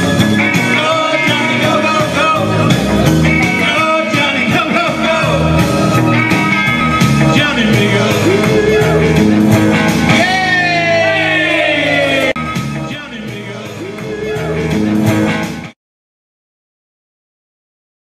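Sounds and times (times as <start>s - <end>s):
electric guitar: 0.0s - 15.7s
live rock band playing: 0.0s - 15.8s
men singing: 0.5s - 2.8s, 3.4s - 5.8s, 7.2s - 9.3s, 10.1s - 14.7s.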